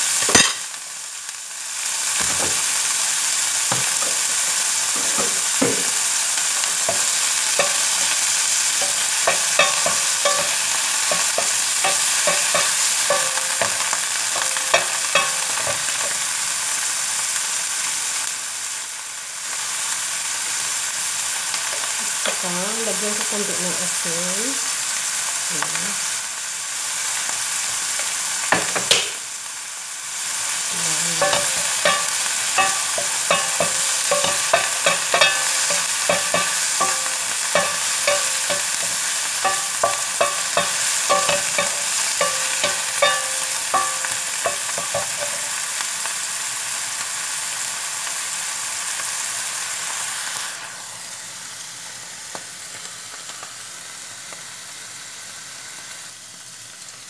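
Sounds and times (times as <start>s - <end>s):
food sizzling in a frying pan: 0.0s - 57.0s
wooden spatula clacking on pan: 6.6s - 16.2s, 31.2s - 45.6s.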